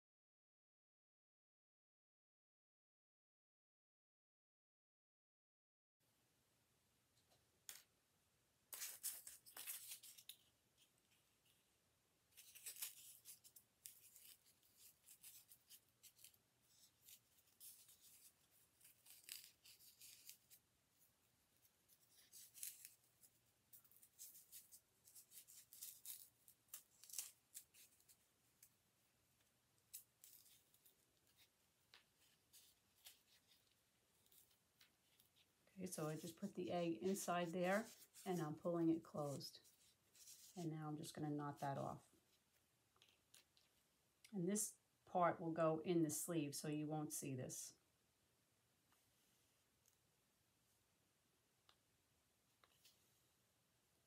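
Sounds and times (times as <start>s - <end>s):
fabric rustling: 12.3s - 40.6s.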